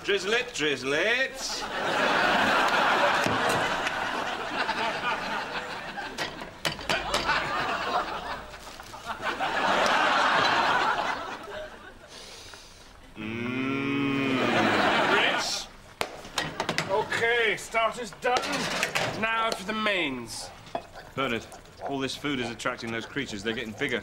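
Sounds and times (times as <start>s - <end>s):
audience laughing: 1.5s - 12.2s, 14.1s - 15.8s.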